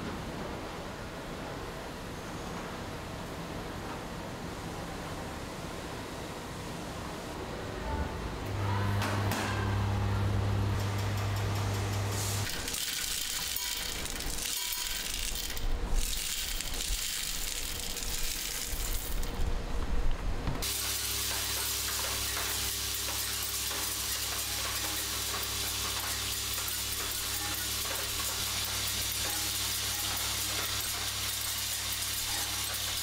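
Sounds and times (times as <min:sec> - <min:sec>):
vibratory feeder humming: 0:08.3 - 0:33.0
screws rattling on vibrating track: 0:10.8 - 0:19.4, 0:21.3 - 0:33.0
screws clattering into metal bowl: 0:12.5 - 0:19.3.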